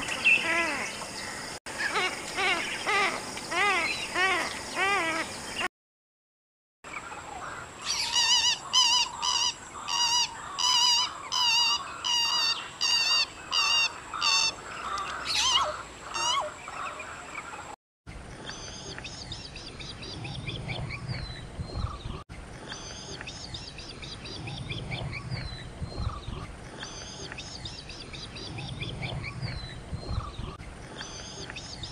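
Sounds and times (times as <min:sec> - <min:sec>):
loud nasal bird calls: 0:07.0 - 0:17.8.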